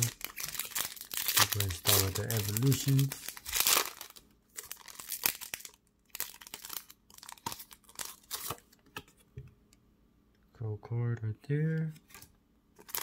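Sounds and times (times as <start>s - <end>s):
foil wrapper crinkling and tearing: 0.0s - 8.6s, 12.8s - 13.0s.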